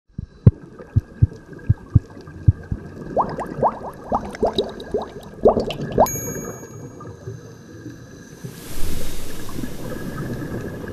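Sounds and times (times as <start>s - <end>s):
low thumps: 0.1s - 2.8s
rising bubbly bloops: 0.1s - 6.1s
bright chime: 6.1s - 7.5s.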